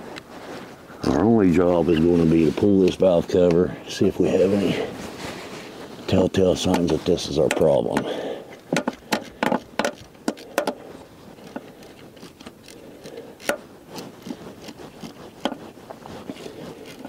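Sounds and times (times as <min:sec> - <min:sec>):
tool clicking and tapping on engine: 0:06.7 - 0:10.8.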